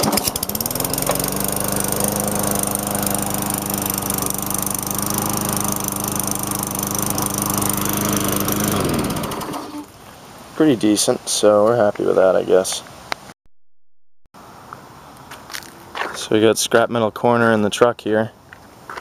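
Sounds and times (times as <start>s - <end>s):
lawn mower engine starting and running: 0.0s - 9.9s.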